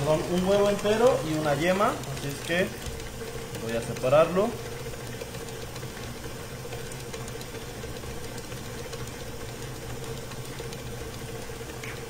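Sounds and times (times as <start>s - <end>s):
stand mixer motor hum: 0.0s - 12.0s.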